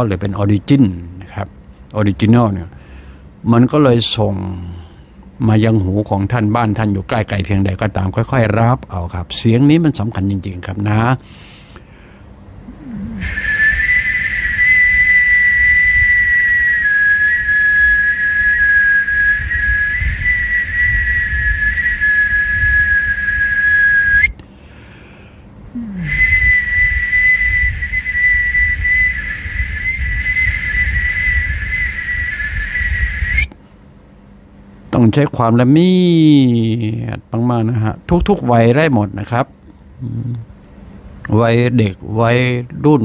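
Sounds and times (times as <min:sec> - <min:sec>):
breath noise on microphone: 0:11.2 - 0:13.4
man whistling high notes: 0:12.9 - 0:24.4, 0:26.0 - 0:33.5.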